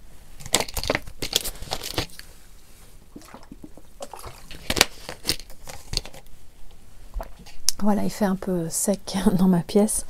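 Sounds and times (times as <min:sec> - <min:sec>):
person sipping and swallowing: 0:03.1 - 0:04.7.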